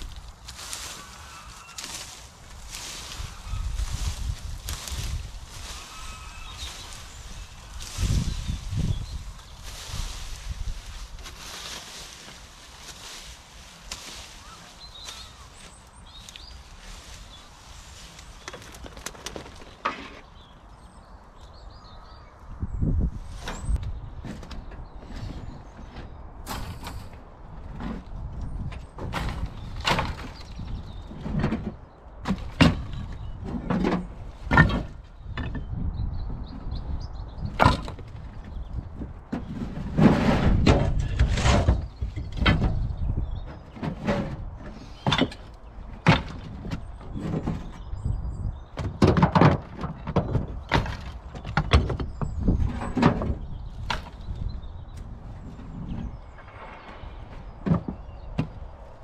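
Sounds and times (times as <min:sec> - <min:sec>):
rubble scraping and rattling: 0:18.1 - 0:20.4, 0:23.5 - 0:35.7, 0:37.4 - 0:48.1, 0:48.8 - 0:54.6.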